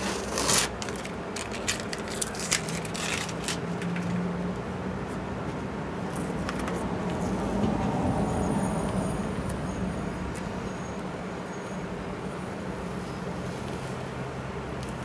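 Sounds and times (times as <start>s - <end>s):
tape ripping: 0.0s - 3.6s
masking tape peeling: 0.0s - 4.0s
low engine rumble: 0.0s - 15.0s.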